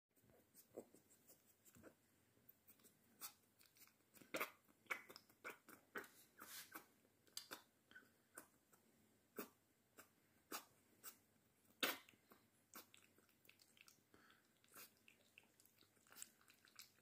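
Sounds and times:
puppy lapping milk: 0:03.3 - 0:06.2, 0:11.8 - 0:17.0.

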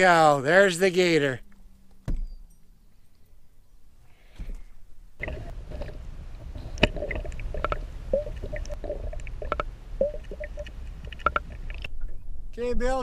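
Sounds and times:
bubbles gurgling: 0:05.2 - 0:11.8
muffled underwater rumble: 0:05.2 - 0:11.8
short pitched blips: 0:06.8 - 0:11.4
scattered clicks: 0:06.8 - 0:11.9.

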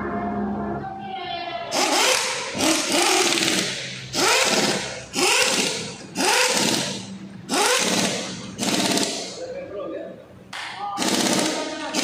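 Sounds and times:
compressed-air tool bursts: 0:01.7 - 0:09.4, 0:11.0 - 0:12.0.

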